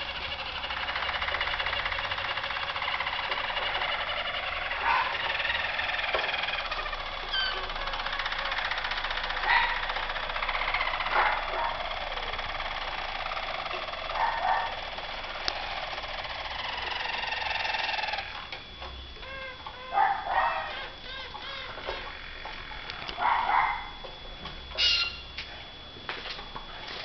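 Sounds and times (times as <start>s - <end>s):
canaries singing trills: 7.3s - 7.6s, 24.8s - 25.3s.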